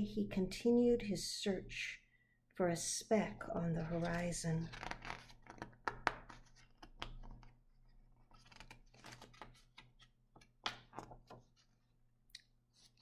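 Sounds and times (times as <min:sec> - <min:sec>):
paper page rustling and turning: 0:03.8 - 0:11.9, 0:12.7 - 0:13.0.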